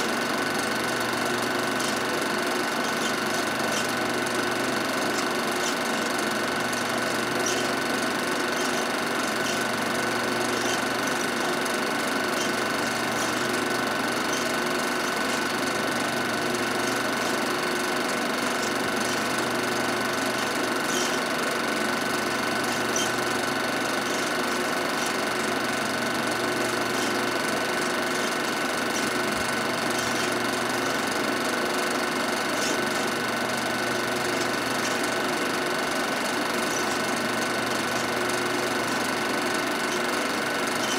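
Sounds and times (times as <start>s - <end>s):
film projector whirring: 0.0s - 40.9s.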